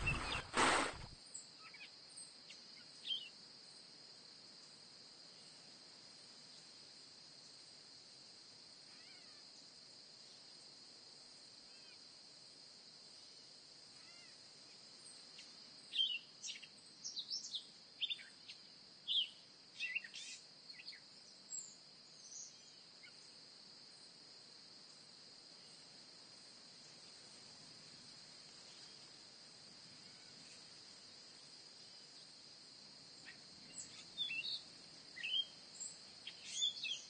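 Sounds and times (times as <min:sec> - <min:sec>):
sharp animal chirps: 0:00.0 - 0:01.1
cricket chorus drone: 0:14.5 - 0:37.0.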